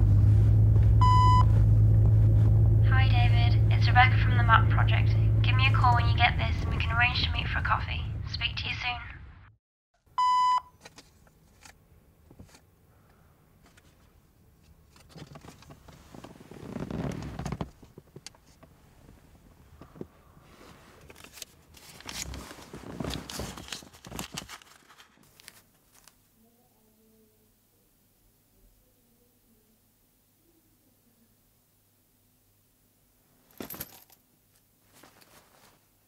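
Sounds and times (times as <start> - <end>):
rustling and handling noises: 10.7 - 26.4, 33.3 - 36.0.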